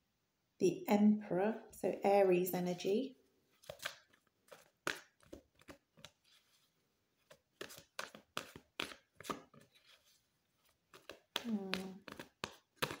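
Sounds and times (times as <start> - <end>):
cards being shuffled: 3.5 - 13.0.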